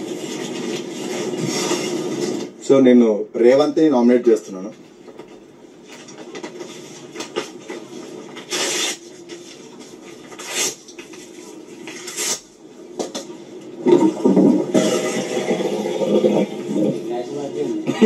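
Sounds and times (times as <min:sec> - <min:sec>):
low background hum: 0:00.0 - 0:18.0
paper tearing: 0:08.4 - 0:09.2, 0:10.2 - 0:11.1, 0:11.8 - 0:12.5.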